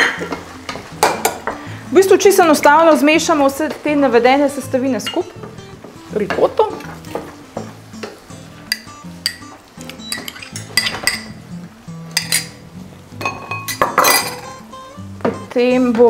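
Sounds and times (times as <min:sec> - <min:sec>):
spoon clinking against mixing bowl: 0:08.7 - 0:11.4, 0:12.1 - 0:12.6.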